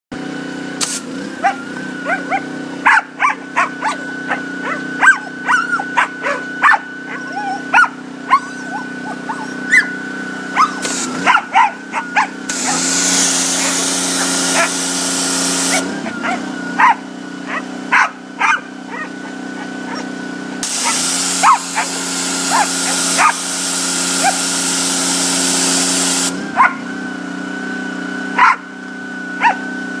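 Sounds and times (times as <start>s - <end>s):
pressure washer humming: 0.1s - 30.0s
pressure washer spray hissing: 0.8s - 1.6s, 10.4s - 16.4s, 20.6s - 26.5s
dog yipping and barking: 1.4s - 15.0s, 15.6s - 20.1s, 20.7s - 23.5s, 24.2s - 24.5s, 26.6s - 26.9s, 28.4s - 28.7s, 29.4s - 29.7s.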